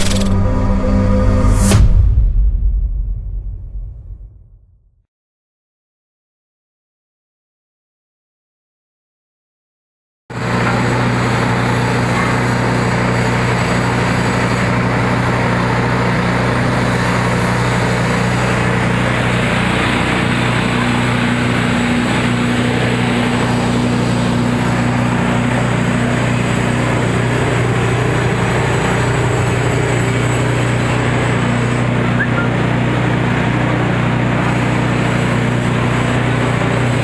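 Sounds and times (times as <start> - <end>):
threshing machine running: 0.0 - 2.0, 10.3 - 37.0.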